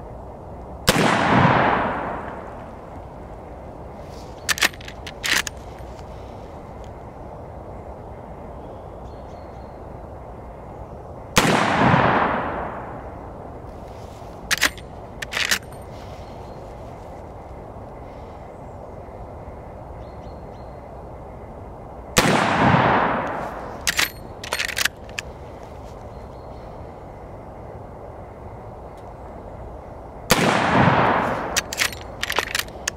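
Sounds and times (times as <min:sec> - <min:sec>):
rifle shots with echo: 0:00.9 - 0:02.6, 0:11.4 - 0:13.0, 0:22.2 - 0:24.9, 0:30.3 - 0:32.9
rifle lever metallic clacks: 0:04.4 - 0:05.6, 0:14.5 - 0:15.8, 0:23.8 - 0:25.2, 0:31.5 - 0:32.9.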